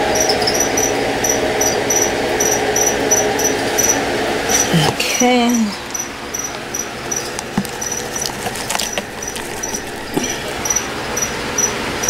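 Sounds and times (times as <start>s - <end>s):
dry leaves crackling: 7.4s - 10.6s.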